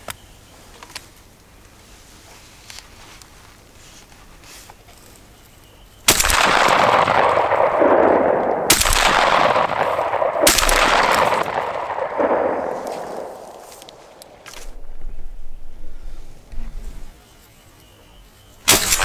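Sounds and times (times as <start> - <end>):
shotgun shots with rolling echo: 6.1 - 14.5, 18.7 - 19.0.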